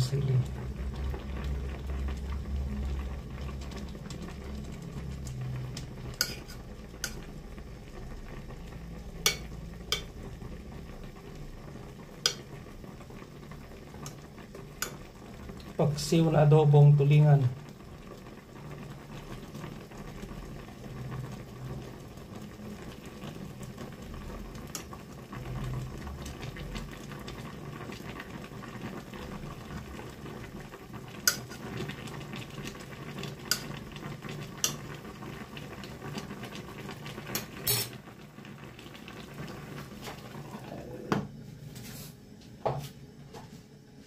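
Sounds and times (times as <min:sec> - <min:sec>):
stew bubbling in a pot: 0:00.0 - 0:41.4
metal spoon clinking against pot: 0:06.2 - 0:07.2.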